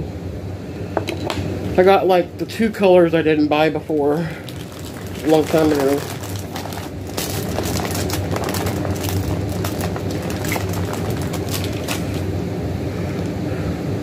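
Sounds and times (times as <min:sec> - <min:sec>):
steady low hum: 0:00.0 - 0:14.0
plastic bag crinkling: 0:03.9 - 0:12.3.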